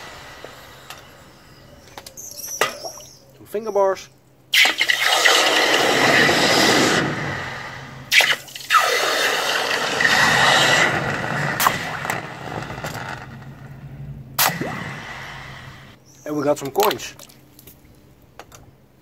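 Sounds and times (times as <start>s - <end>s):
hot metal hissing in water: 0.0s - 1.5s, 4.6s - 12.0s.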